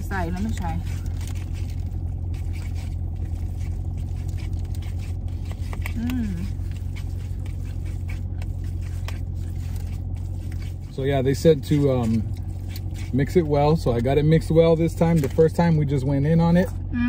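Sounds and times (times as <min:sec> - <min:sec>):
car cabin hum: 0:00.0 - 0:17.0
plastic fork scraping in bowl: 0:00.2 - 0:15.8
chewing: 0:00.3 - 0:14.2
person humming: 0:05.9 - 0:06.6.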